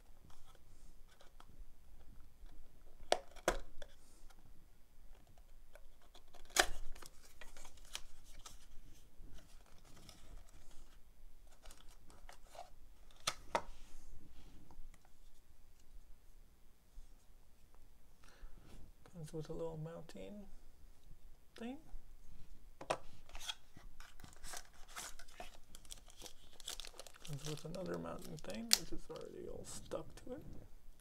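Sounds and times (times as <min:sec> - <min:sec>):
cardboard rustling and scraping: 0:05.9 - 0:14.5, 0:23.1 - 0:30.0.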